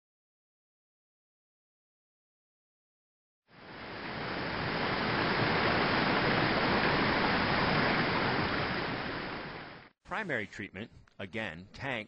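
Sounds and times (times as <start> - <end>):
water rushing through channel: 3.6 - 9.9.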